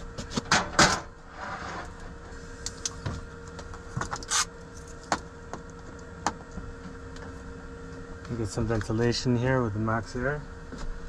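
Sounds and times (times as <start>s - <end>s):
low mechanical hum: 0.0s - 11.0s
metal clattering scrape: 0.5s - 2.0s.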